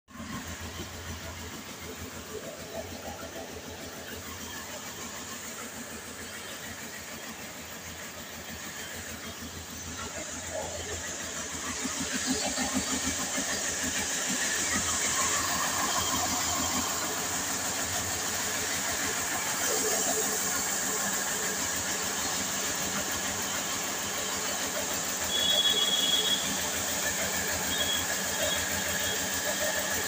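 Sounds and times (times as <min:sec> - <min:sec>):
flour mill pulsing: 0:00.1 - 0:30.0
high whistle-like tone: 0:25.2 - 0:26.8, 0:27.5 - 0:29.3.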